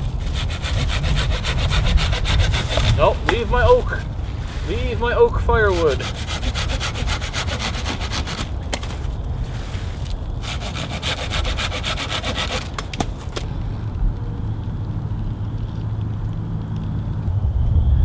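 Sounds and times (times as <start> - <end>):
hand saw rasping through wood: 0.0 - 4.0, 5.6 - 8.9, 10.4 - 13.1.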